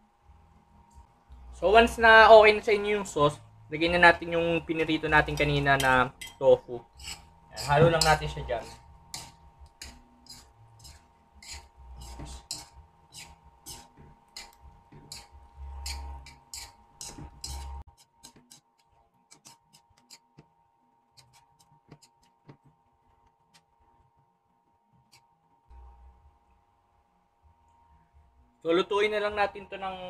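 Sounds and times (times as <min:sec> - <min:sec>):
metal spatula scraping a wok: 0:05.2 - 0:18.7.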